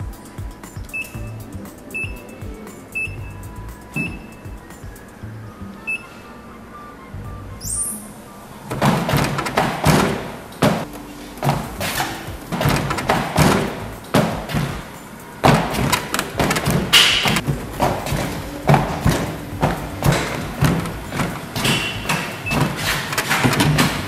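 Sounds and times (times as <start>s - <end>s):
feet thumping on treadmill belt: 8.7s - 24.0s.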